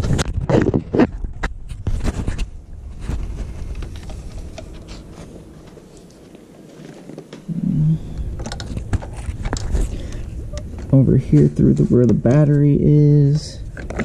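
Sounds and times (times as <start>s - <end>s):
low hum: 0.0s - 14.0s
clicks and rustles of handling: 8.2s - 12.7s, 13.6s - 14.0s.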